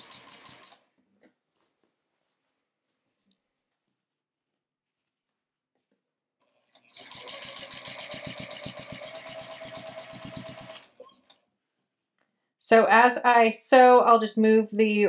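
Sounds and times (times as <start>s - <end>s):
sewing machine stitching: 0.0s - 0.9s, 6.6s - 11.3s.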